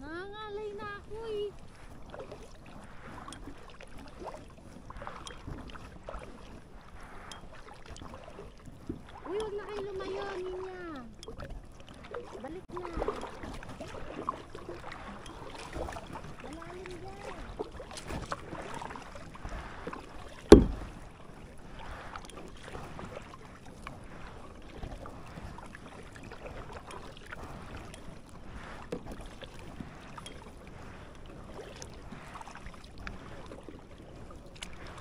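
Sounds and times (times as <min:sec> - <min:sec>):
kayak paddle strokes in water: 0:00.0 - 0:35.0
water lapping: 0:00.0 - 0:35.0
sharp loud thump: 0:20.5 - 0:20.9.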